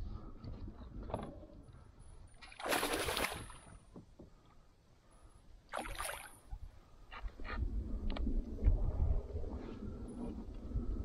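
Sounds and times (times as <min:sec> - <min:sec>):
fish splashing in water: 0:02.4 - 0:03.7.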